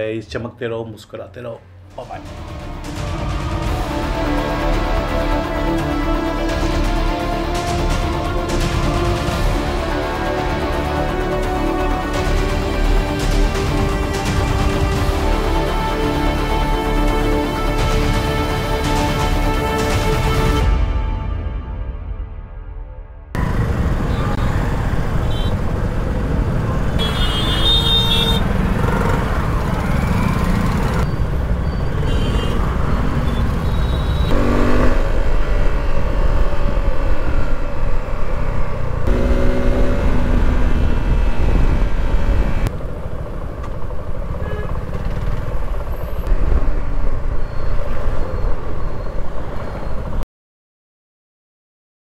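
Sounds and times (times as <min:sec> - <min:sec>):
wind: 0:23.3 - 0:50.2
motorcycle engine: 0:23.4 - 0:46.3
vehicle horns honking: 0:24.1 - 0:25.6, 0:27.0 - 0:29.2, 0:31.7 - 0:35.0, 0:44.4 - 0:45.1.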